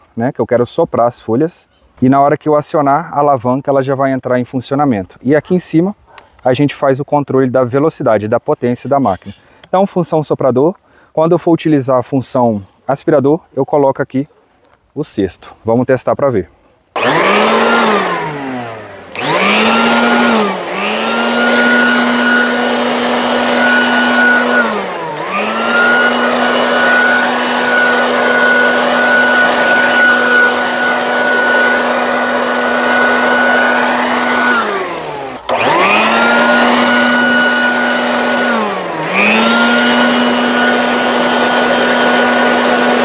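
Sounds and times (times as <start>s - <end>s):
leaf blower motor whine: 17.0s - 43.0s.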